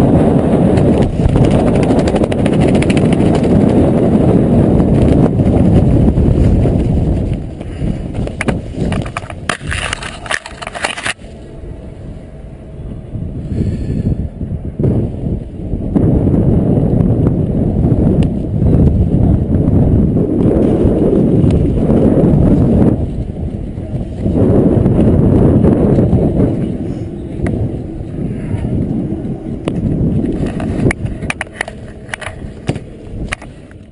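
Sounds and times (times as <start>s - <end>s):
parachute fabric flapping: 0.0s - 11.3s, 14.8s - 33.9s
wind buffeting microphone: 0.0s - 33.9s
parachute gear clicks and knocks: 0.7s - 3.8s, 7.2s - 11.2s, 30.2s - 33.9s.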